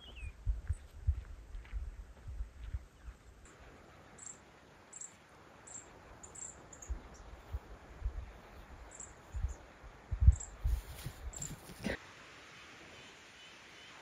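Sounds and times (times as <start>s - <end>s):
insects chirping: 3.5s - 11.8s.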